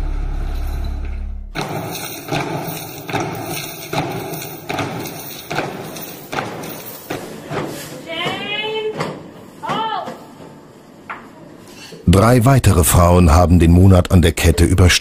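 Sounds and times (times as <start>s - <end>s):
footsteps marching on hard floor: 1.6s - 10.6s.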